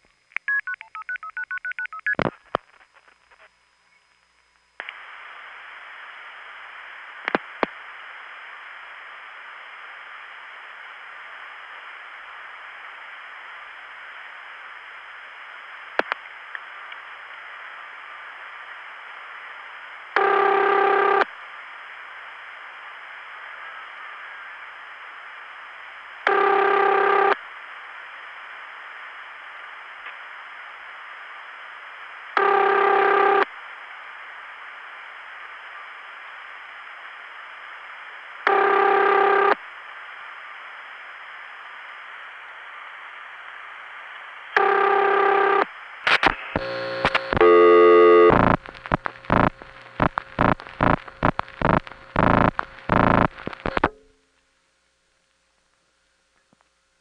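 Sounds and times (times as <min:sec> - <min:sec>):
telephone line hiss: 0:16.6 - 0:42.4, 0:43.7 - 0:54.0
telephone ringing tone: 0:20.2 - 0:21.2, 0:26.3 - 0:27.4, 0:32.4 - 0:33.4, 0:38.5 - 0:39.6, 0:44.6 - 0:45.7, 0:47.4 - 0:48.6
rapid clicks and tone bursts: 0:44.6 - 0:54.0.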